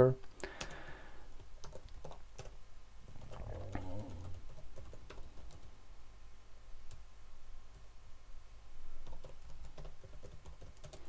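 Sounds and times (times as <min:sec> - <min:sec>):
computer keyboard typing: 0:01.4 - 0:05.7, 0:09.0 - 0:11.0.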